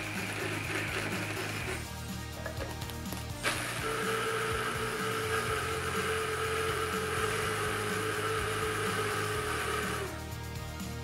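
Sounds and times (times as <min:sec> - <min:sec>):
hand blender motor whirring: 0:00.0 - 0:01.9, 0:03.4 - 0:10.2.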